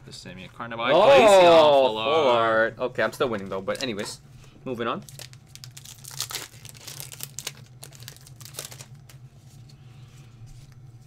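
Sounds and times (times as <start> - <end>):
foil wrapper crinkling: 5.0 - 9.2.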